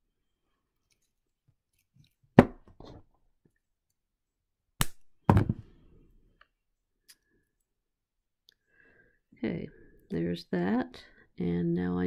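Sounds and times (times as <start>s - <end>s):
pliers and wire handling: 0.7s - 4.0s.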